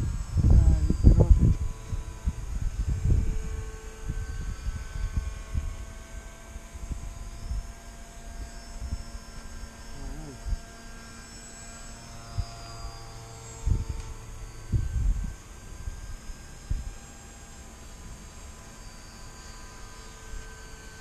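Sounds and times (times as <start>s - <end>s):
wind buffeting microphone: 0.0s - 10.7s, 13.5s - 17.0s
electric motor and propeller whine: 0.0s - 21.0s.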